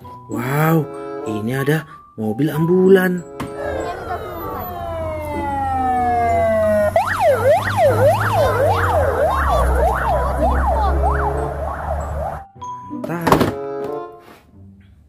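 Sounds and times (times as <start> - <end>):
traffic rumble: 3.2 - 12.5
ambulance siren: 3.2 - 12.6.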